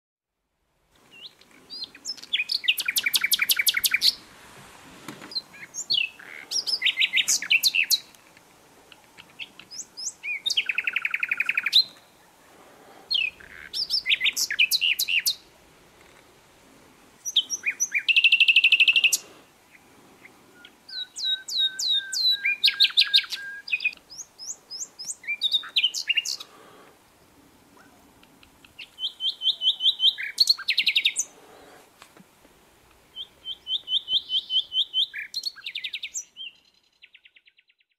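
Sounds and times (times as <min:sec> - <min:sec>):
songbird trilling: 0:01.1 - 0:04.2, 0:05.3 - 0:08.2, 0:08.9 - 0:12.3, 0:13.1 - 0:15.5, 0:17.2 - 0:26.6, 0:27.8 - 0:31.8, 0:33.1 - 0:37.7.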